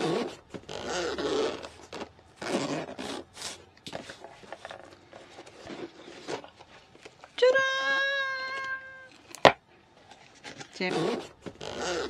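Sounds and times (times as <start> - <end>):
zipper being pulled open: 0.0 - 6.6, 10.3 - 12.0
case scraping and rustling: 0.0 - 7.4, 9.1 - 12.0.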